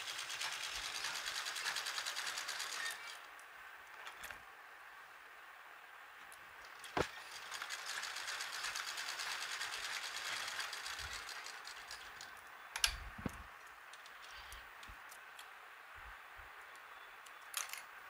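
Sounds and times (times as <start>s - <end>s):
sewing machine stitching: 0.0s - 3.2s, 6.7s - 12.3s.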